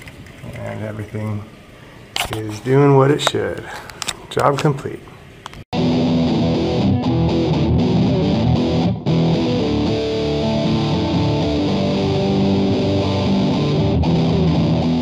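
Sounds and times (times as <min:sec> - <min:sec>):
electric guitar music: 0:05.8 - 0:15.0.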